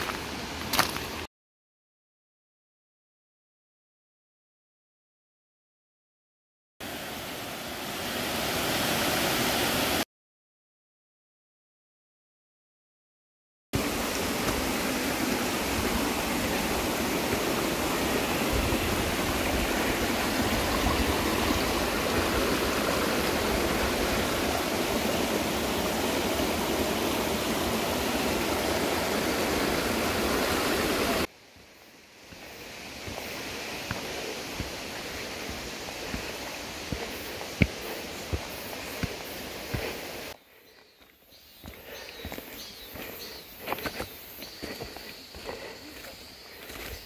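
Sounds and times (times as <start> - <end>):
stream water rushing over rocks: 6.8 - 10.0, 13.8 - 40.4.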